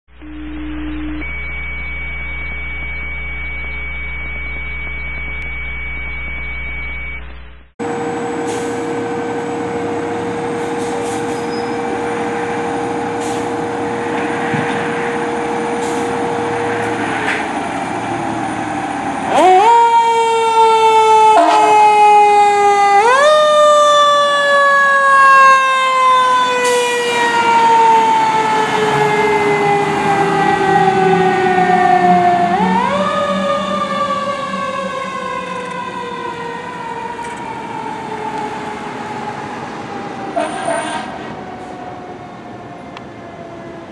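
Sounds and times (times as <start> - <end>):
muffled hum: 0.1 - 10.4
high steady tone: 0.1 - 18.8
truck engine: 7.2 - 19.9, 25.2 - 43.9
fire engine siren wailing: 7.8 - 43.9.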